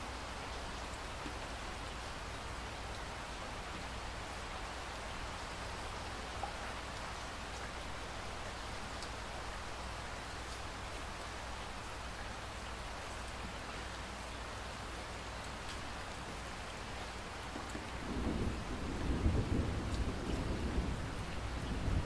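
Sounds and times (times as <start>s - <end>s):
steady rain falling: 0.0s - 22.0s
low rumble of thunder: 17.8s - 22.0s.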